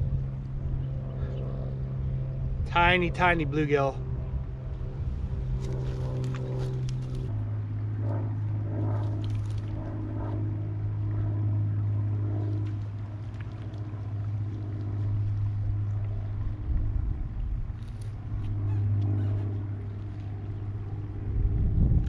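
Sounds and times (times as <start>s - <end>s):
motor droning: 0.0s - 22.0s
faint clicks and rustles: 5.5s - 7.4s, 12.4s - 16.3s.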